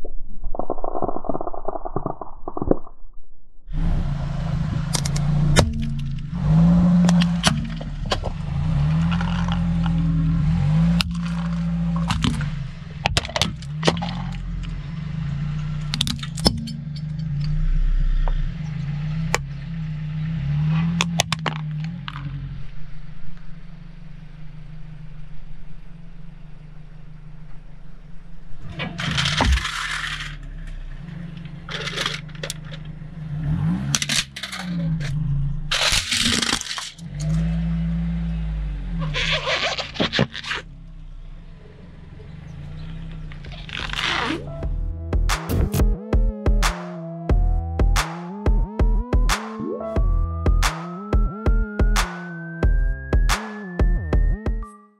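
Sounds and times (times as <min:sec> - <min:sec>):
car engine running: 0:03.7 - 0:54.6
tyre crushing plastic objects: 0:28.9 - 0:30.4, 0:35.7 - 0:37.0.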